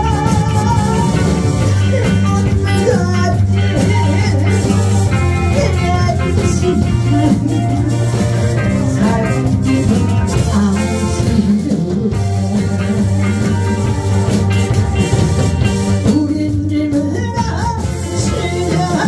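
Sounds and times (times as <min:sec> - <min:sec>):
person singing into microphone: 0:00.0 - 0:14.4, 0:15.6 - 0:19.0
live band playing: 0:00.0 - 0:19.0.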